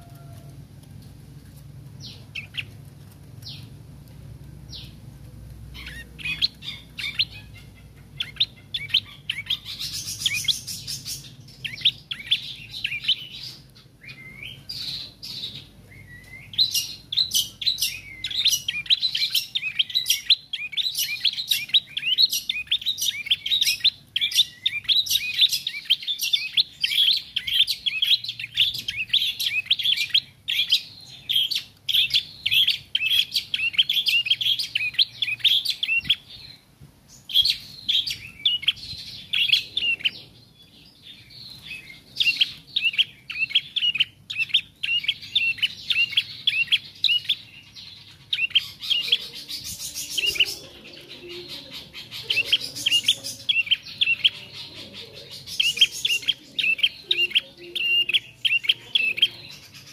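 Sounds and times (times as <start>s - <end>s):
bird chirping song: 0.0s - 59.9s.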